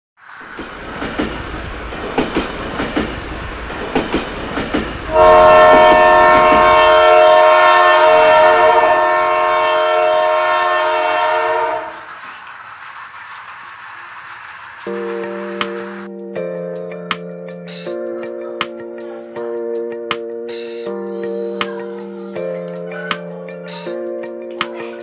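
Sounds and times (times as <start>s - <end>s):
toy train wheels clicking: 0.2s - 6.7s, 11.5s - 16.1s
electronic toy horn: 5.1s - 12.1s.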